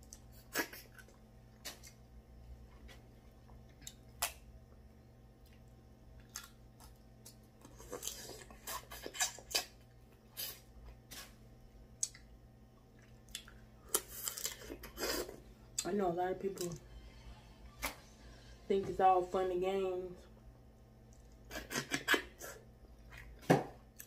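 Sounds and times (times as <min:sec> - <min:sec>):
chewing and mouth smacks: 0:00.0 - 0:02.0, 0:12.0 - 0:15.0.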